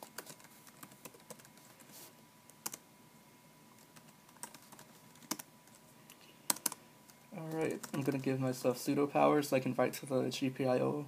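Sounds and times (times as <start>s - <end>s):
keyboard typing: 0.0s - 1.8s, 2.6s - 2.8s, 3.8s - 5.8s, 6.5s - 6.8s, 7.4s - 8.3s.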